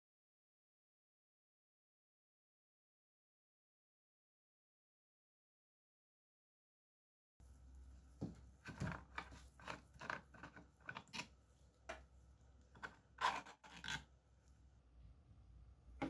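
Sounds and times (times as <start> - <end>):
plastic parts clicking and scraping: 8.7 - 11.3, 12.7 - 14.0.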